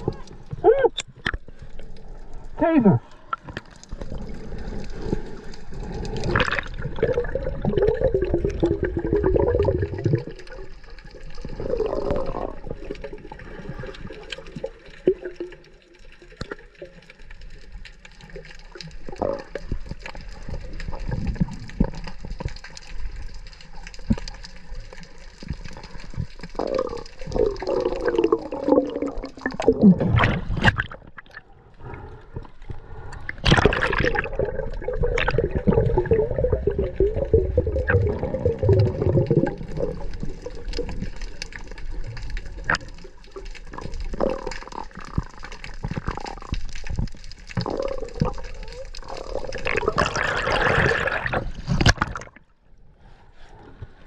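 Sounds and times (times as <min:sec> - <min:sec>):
water sloshing and gurgling: 0:00.0 - 0:54.0.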